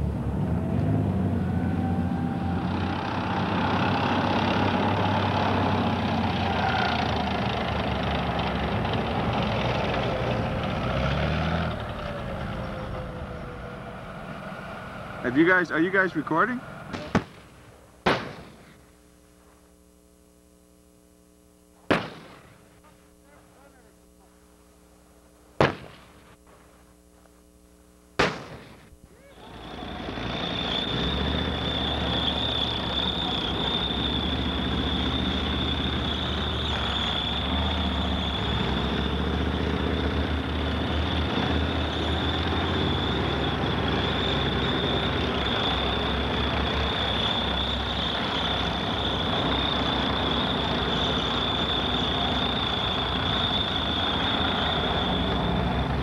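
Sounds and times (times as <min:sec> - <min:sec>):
tank engine and tracks: 0:00.0 - 0:17.5, 0:29.3 - 0:56.0
steady high whine: 0:11.7 - 0:56.0
distant tank gun shot: 0:16.9 - 0:18.8, 0:21.9 - 0:22.6, 0:25.6 - 0:26.3, 0:28.2 - 0:28.9.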